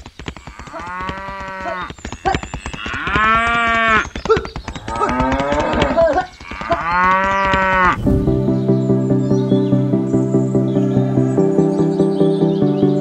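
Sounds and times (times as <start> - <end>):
cattle mooing: 4.8 - 8.0.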